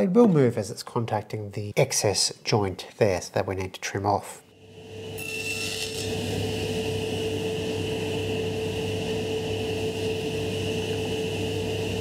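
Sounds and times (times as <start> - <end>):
table saw whining hum: 4.6 - 12.0.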